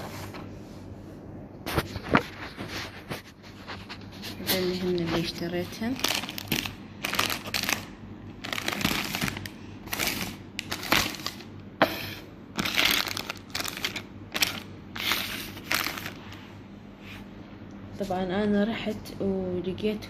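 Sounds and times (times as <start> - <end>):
plastic packets crinkling: 5.0 - 11.5, 12.6 - 16.3.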